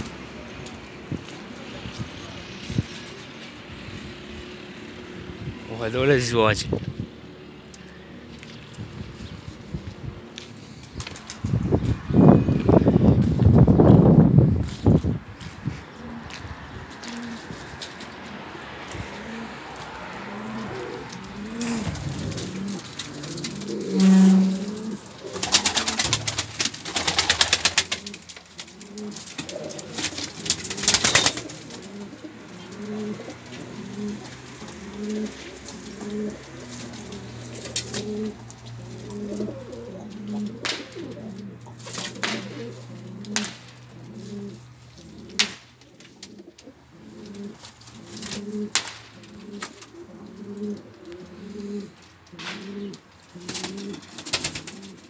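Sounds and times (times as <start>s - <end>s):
pigeons cooing: 15.4s - 55.0s
wing flutters and knocks: 20.4s - 32.1s.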